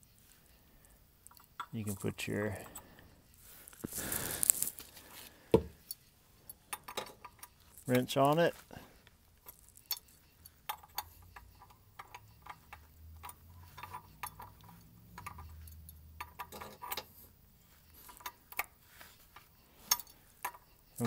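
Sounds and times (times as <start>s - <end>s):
wrench clicking and clinking: 9.5s - 17.2s, 19.8s - 20.7s.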